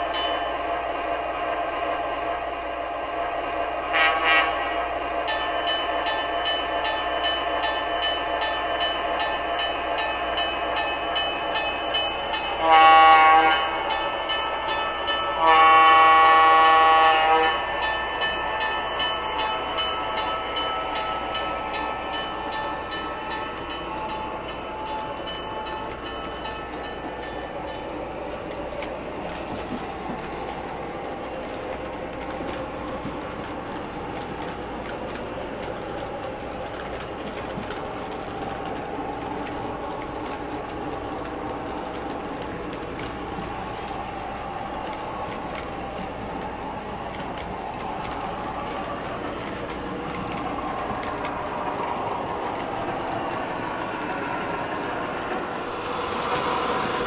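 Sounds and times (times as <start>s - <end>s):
model train diesel engine sound: 0.0s - 57.0s
train horn blasts: 3.8s - 4.9s, 12.5s - 13.9s, 15.3s - 17.8s.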